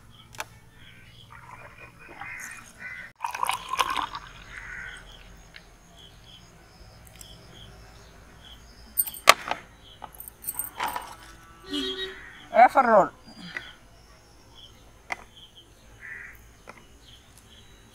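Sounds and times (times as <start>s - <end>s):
crows cawing: 2.1s - 3.1s, 4.1s - 5.2s, 11.7s - 12.5s, 16.0s - 16.4s.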